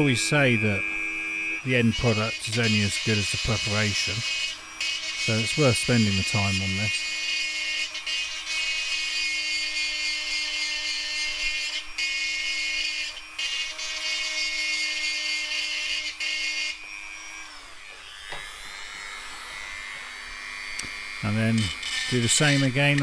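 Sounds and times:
rotary tool grinding: 0:00.0 - 0:23.0.

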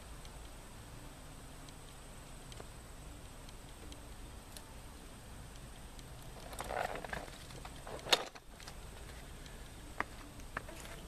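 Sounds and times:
background hiss: 0:00.0 - 0:11.0
rustling: 0:06.2 - 0:11.0.

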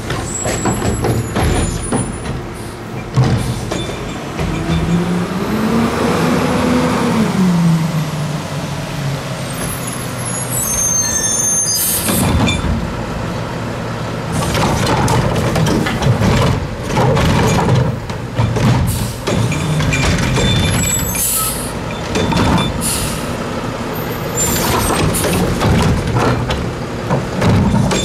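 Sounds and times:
clattering and banging: 0:00.0 - 0:05.2, 0:14.4 - 0:21.3, 0:21.9 - 0:22.8, 0:24.6 - 0:28.0
garbage truck engine revving: 0:04.3 - 0:09.7
high squeal: 0:09.5 - 0:12.6
air brakes hissing: 0:20.9 - 0:21.8, 0:22.7 - 0:23.4.

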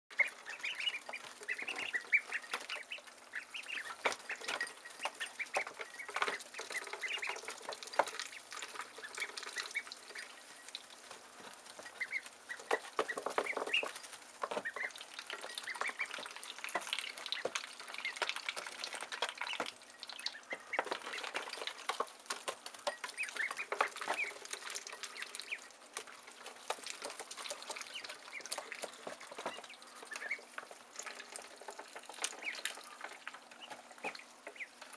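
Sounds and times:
ducklings peeping: 0:00.1 - 0:34.9.

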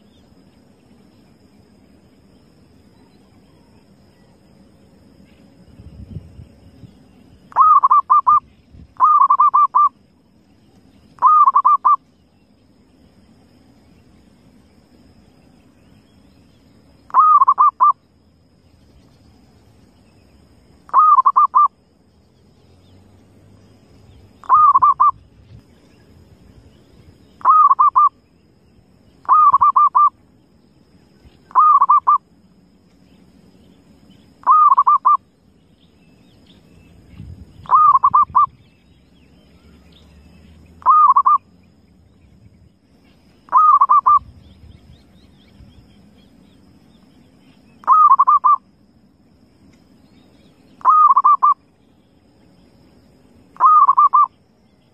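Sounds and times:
dove cooing: 0:07.5 - 0:08.4, 0:09.0 - 0:09.9, 0:11.2 - 0:12.0, 0:17.1 - 0:17.9, 0:20.9 - 0:21.7, 0:24.4 - 0:25.2, 0:27.4 - 0:28.1, 0:29.2 - 0:30.1, 0:31.5 - 0:32.2, 0:34.4 - 0:35.2, 0:37.7 - 0:38.5, 0:40.8 - 0:41.4, 0:43.5 - 0:44.3, 0:47.8 - 0:48.6, 0:50.8 - 0:51.6, 0:53.6 - 0:54.3.

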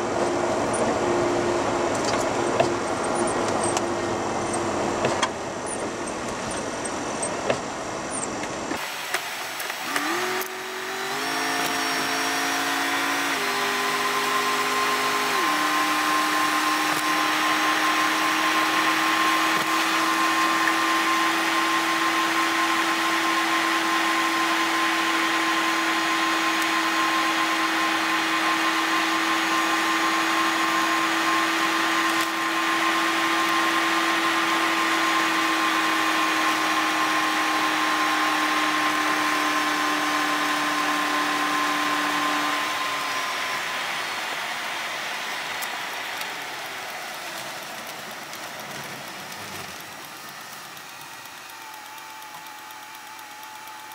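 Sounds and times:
truck cabin whine and hum: 0:00.0 - 0:53.9
constant hiss: 0:43.8 - 0:53.9.

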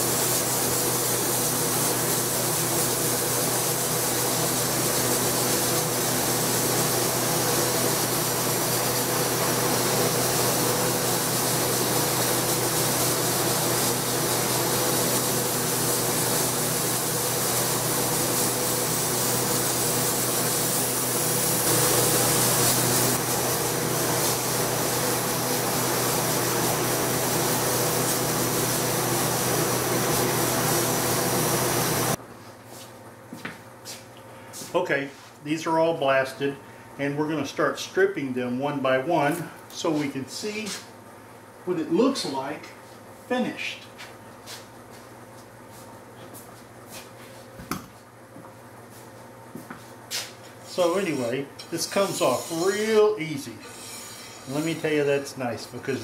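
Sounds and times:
sandblasting hiss on glass: 0:00.0 - 0:32.2, 0:50.8 - 0:55.2.

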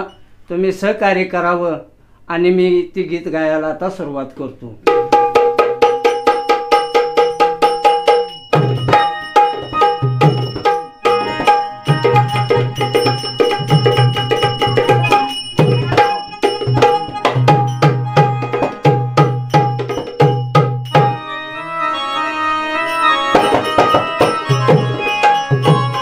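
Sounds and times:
hand drum rhythm: 0:04.8 - 0:21.2, 0:23.3 - 0:26.0
small hand cymbals tapping: 0:05.3 - 0:21.2
electronic keyboard melody: 0:07.4 - 0:26.0.

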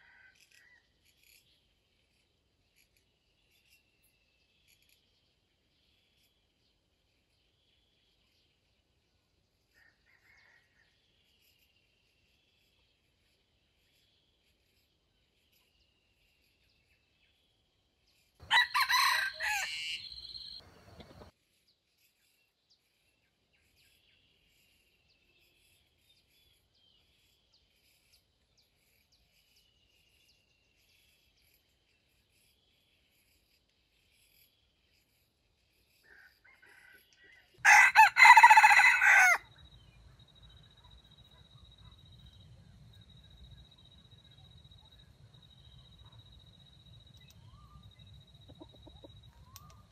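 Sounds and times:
rooster crowing: 0:18.4 - 0:21.2, 0:36.5 - 0:39.5.

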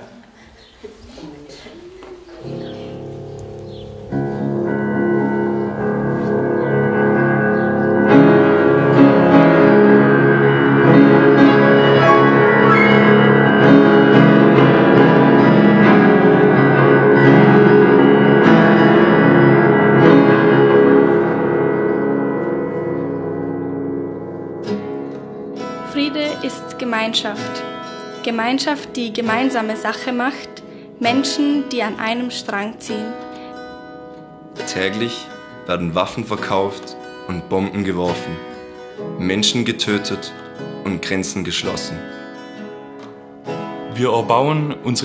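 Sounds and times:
slow piano passage: 0:01.9 - 0:26.1.

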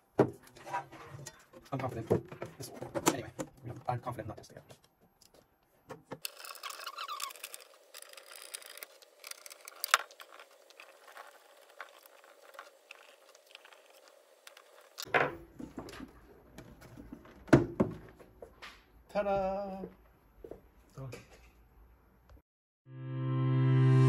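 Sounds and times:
screwdriver scratching and clicking: 0:06.2 - 0:15.1.

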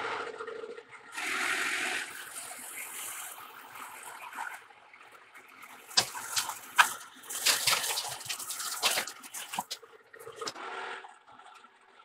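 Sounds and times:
metal chips crackling: 0:05.8 - 0:10.5.

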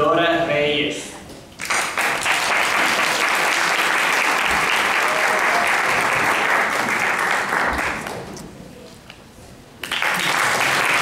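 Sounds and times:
audience applauding: 0:01.6 - 0:08.3, 0:09.8 - 0:11.0.

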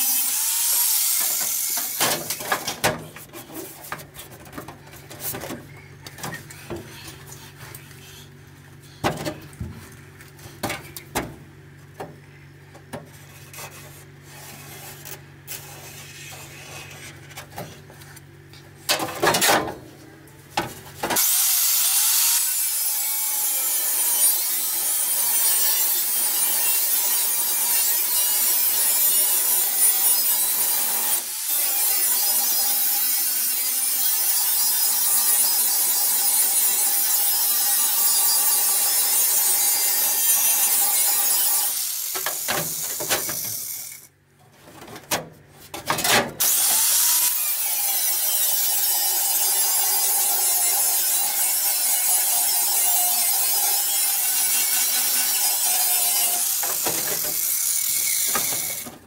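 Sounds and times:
rotary tool grinding steel: 0:00.0 - 0:02.4, 0:13.2 - 0:17.4, 0:21.2 - 0:44.1, 0:46.4 - 0:58.9.

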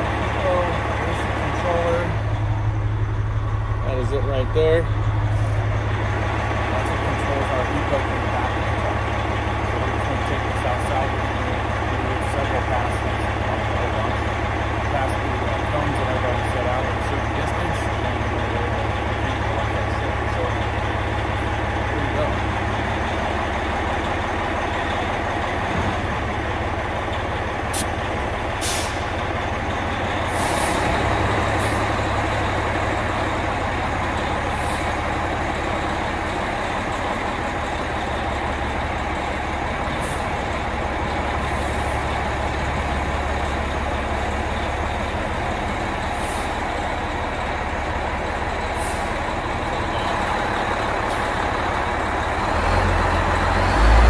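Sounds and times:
diesel engine idling: 0:00.0 - 0:54.0
air brake hisses: 0:28.6 - 0:29.1.

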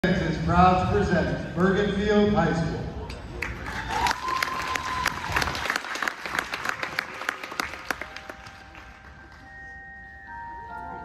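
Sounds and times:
audience applauding: 0:03.4 - 0:09.5
percussion ensemble music: 0:06.6 - 0:11.0.

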